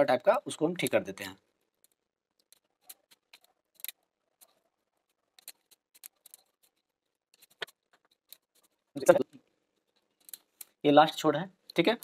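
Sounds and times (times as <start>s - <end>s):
plastic bulbs and wires clicking: 1.5s - 10.8s.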